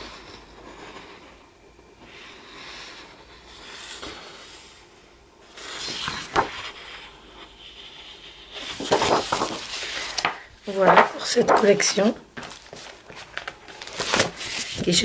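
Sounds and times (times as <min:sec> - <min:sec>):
paper sheets rustling: 0:05.7 - 0:07.0, 0:08.5 - 0:15.0.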